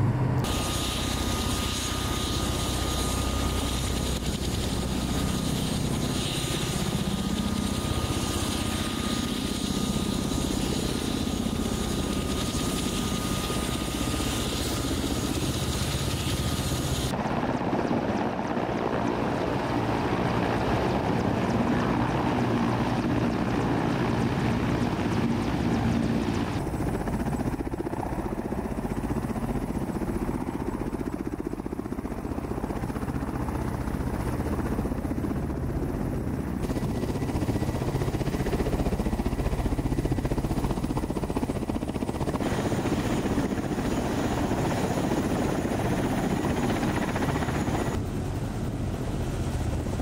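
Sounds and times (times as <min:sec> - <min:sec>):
helicopter rotors and turbine: 0:00.0 - 0:50.0.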